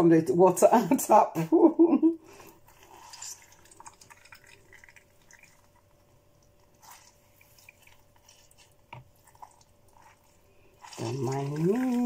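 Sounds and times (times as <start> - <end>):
juice dripping into a jug: 2.4 - 12.0.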